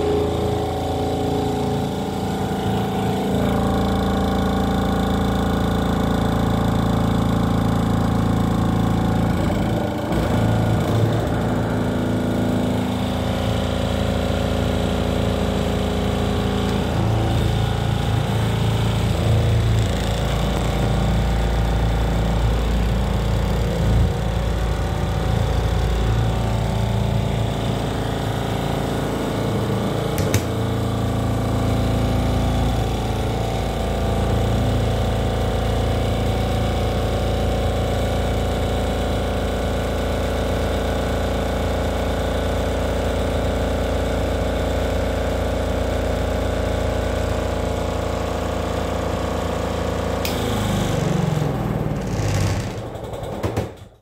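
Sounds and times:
washing machine unbalanced spin: 50.0s - 54.0s.

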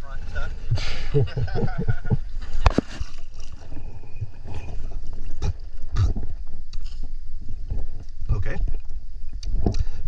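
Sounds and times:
water sloshing and gurgling: 0.1s - 10.0s.

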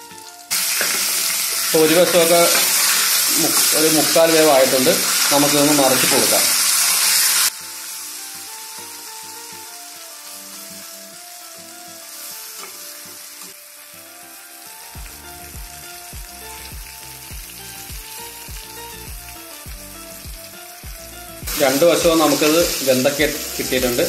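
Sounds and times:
background music melody: 0.0s - 24.0s
fish sizzling in oil: 0.0s - 24.0s
regular music beat: 15.0s - 24.0s.

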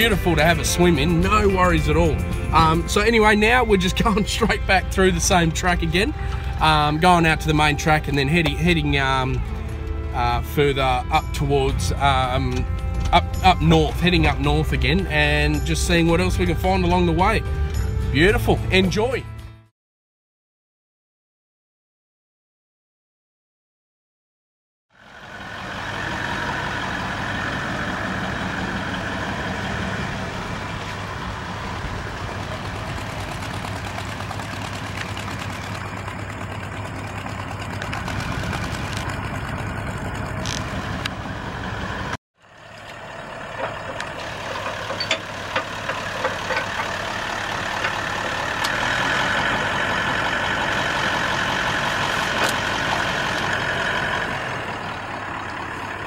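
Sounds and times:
engine running hard: 0.0s - 18.8s, 25.0s - 56.0s
wheelspin throwing mud and water: 25.8s - 41.7s, 42.8s - 56.0s.

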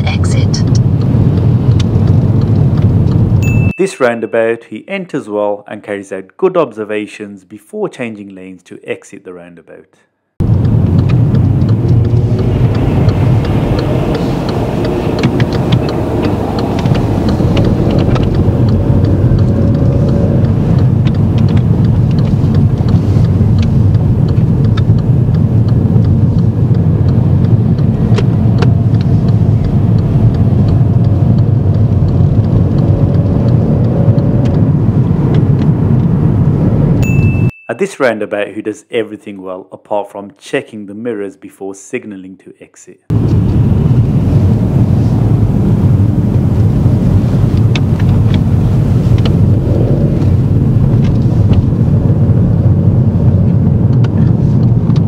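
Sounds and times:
car engine rumble inside cabin: 0.0s - 3.7s, 10.4s - 37.5s, 43.1s - 55.0s.

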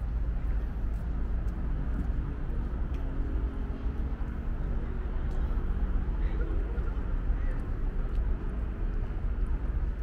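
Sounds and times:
faint engine hum: 0.0s - 10.0s
low rumble of passing vehicles: 0.0s - 10.0s.

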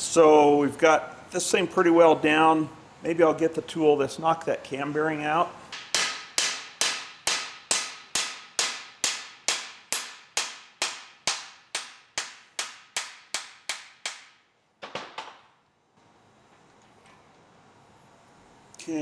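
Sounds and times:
hammer striking metal: 5.7s - 14.4s.

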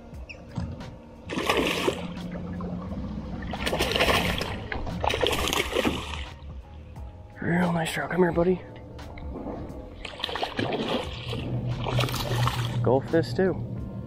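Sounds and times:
fish splashing at water surface: 1.3s - 2.2s, 3.5s - 6.4s, 10.0s - 12.8s.

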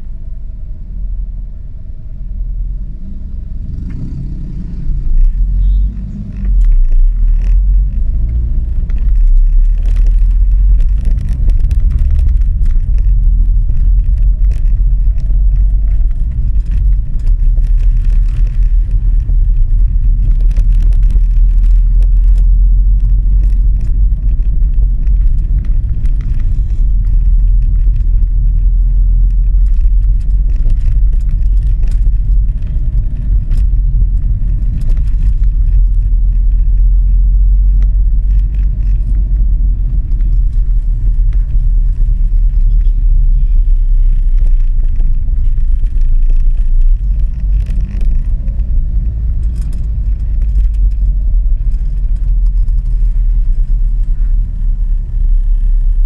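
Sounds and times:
car engine and tyres rumbling: 0.0s - 56.0s.

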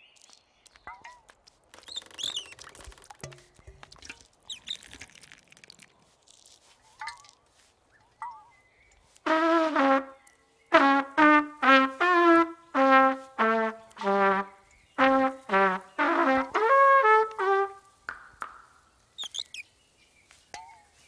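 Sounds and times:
brass-like toots playing a tune: 9.2s - 17.9s
brief high squeak: 19.2s - 19.6s.

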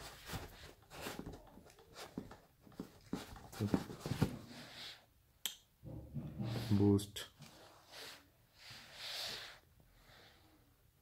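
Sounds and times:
soft rustles: 0.0s - 4.7s.

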